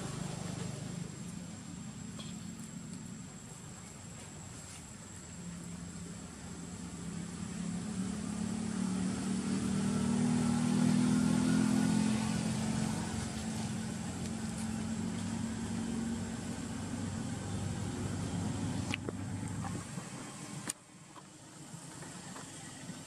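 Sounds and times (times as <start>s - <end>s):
vehicle engine passing: 6.4s - 20.6s.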